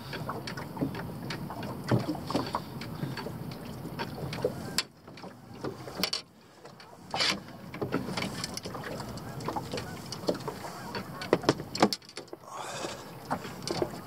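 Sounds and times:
knocks and clicks in boat: 0.0s - 14.0s.

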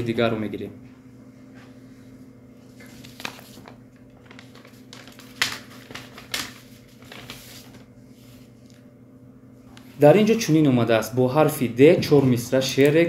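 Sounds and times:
paper rustling: 2.6s - 8.9s.

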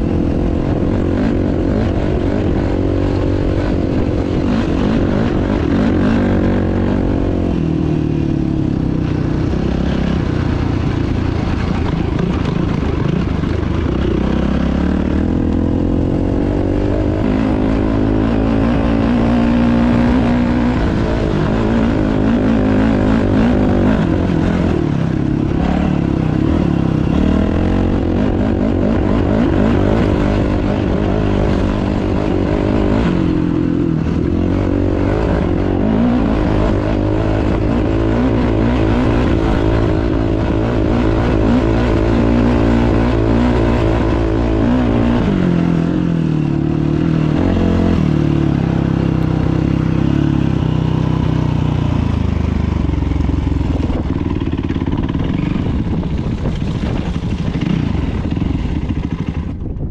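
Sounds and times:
dirt bike engine revving: 0.0s - 59.7s.

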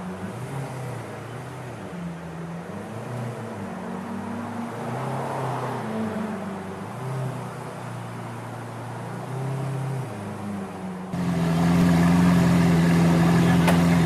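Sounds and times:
car engine running at low revs: 9.2s - 14.0s.

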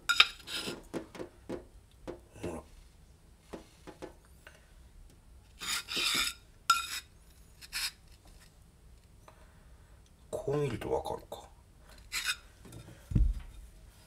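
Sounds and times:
straightedge scraping on whetstone: 0.1s - 0.8s, 5.6s - 8.1s, 12.1s - 12.4s.

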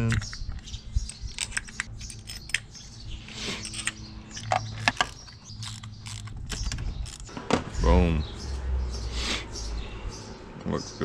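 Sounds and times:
metal bolts clicking and clinking: 0.0s - 7.3s.

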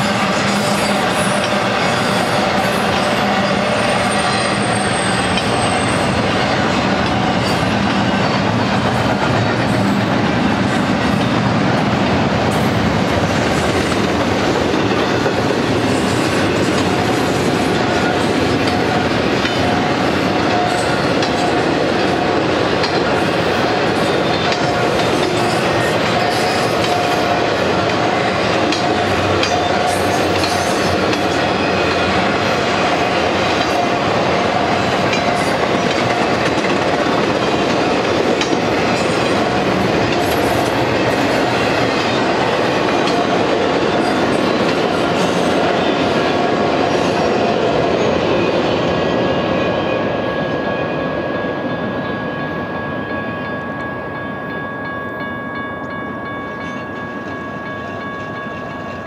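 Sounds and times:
freight train wheels clattering: 0.0s - 49.1s
crossing bell ringing: 0.0s - 59.0s.

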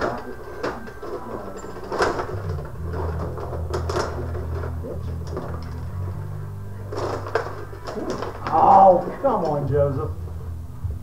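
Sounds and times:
table game rods clacking and rattling: 0.0s - 6.3s, 6.9s - 9.7s
low steady hum: 0.0s - 11.0s.

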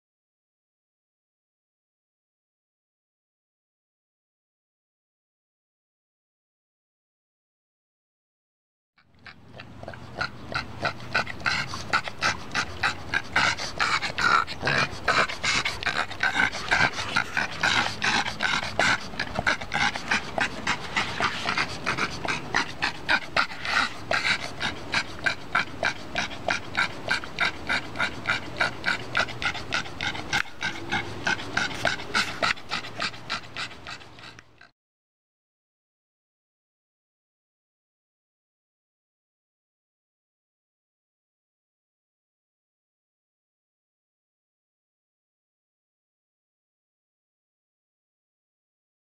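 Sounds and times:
dog panting hard: 9.2s - 34.7s.

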